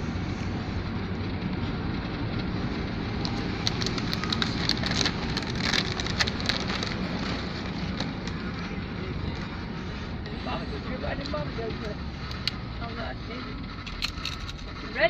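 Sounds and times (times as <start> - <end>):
engine and road noise: 0.0 - 15.0.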